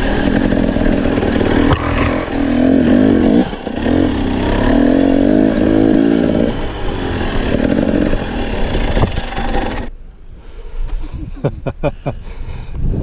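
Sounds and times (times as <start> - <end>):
dirt bike engine revving: 0.0 - 9.9.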